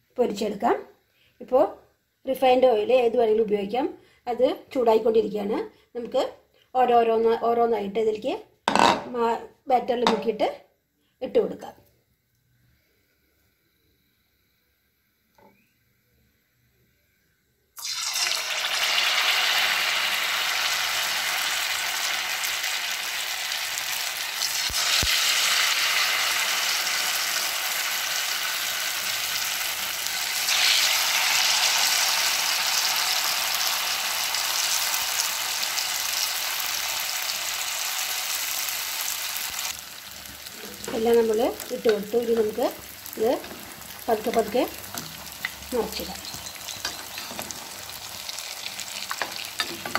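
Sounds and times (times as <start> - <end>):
food deep-frying in oil: 17.8 - 49.9.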